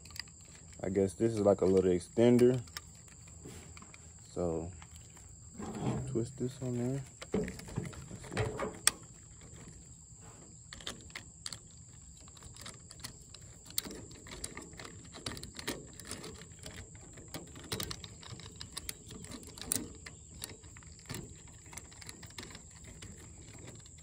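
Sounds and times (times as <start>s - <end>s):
plastic clicks and knocks: 5.6s - 9.7s.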